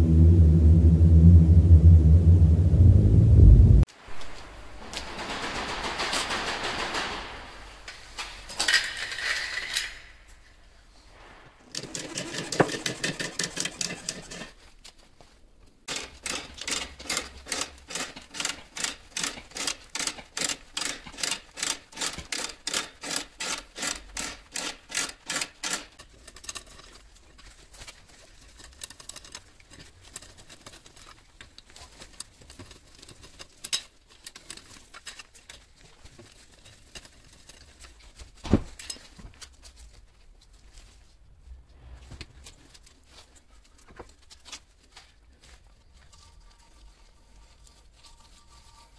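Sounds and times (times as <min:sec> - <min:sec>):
ratchet cranking scissor jack: 0:15.9 - 0:26.7.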